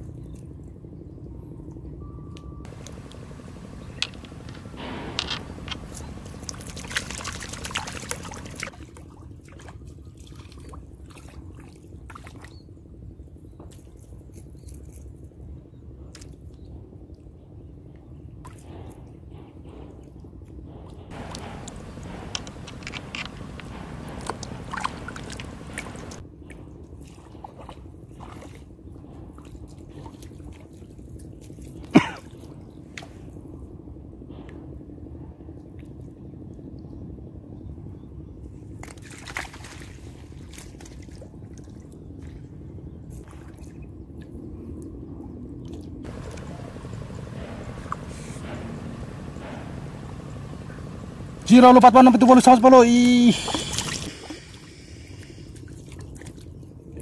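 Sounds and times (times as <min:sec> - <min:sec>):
light clicks: 0:02.7 - 0:08.7, 0:21.1 - 0:26.2
water drips: 0:02.7 - 0:08.7, 0:21.1 - 0:26.2, 0:46.1 - 0:51.8
fish thrashing and splashing: 0:02.7 - 0:08.8, 0:21.3 - 0:26.2.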